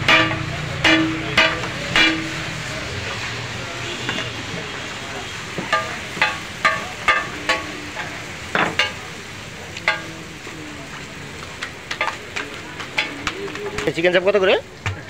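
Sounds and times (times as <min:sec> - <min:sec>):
metal spatula clinking on griddle: 0:00.0 - 0:02.6, 0:05.7 - 0:09.1, 0:09.8 - 0:10.3
chicken sizzling: 0:00.0 - 0:15.0.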